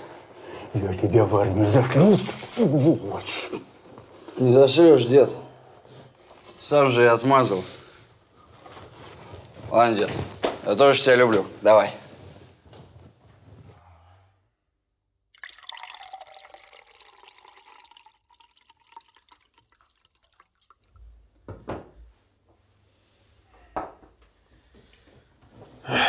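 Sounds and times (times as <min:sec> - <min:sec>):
liquid pouring and splashing: 0:15.3 - 0:21.0.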